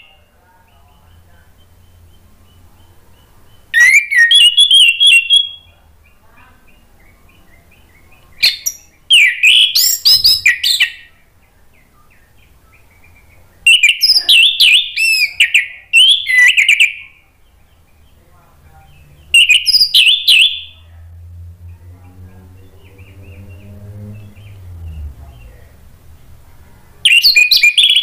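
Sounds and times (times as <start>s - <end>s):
thrush singing: 18.8s - 28.0s.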